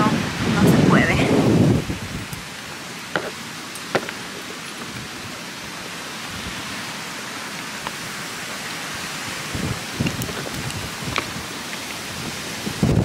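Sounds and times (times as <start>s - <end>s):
strong wind on microphone: 0.0s - 2.5s, 9.3s - 13.0s.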